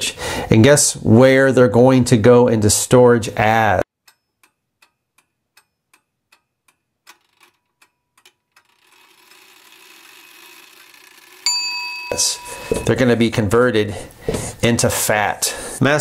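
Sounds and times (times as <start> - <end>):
clock ticking: 4.0 - 11.4
bell-like ringing tone: 11.4 - 13.2.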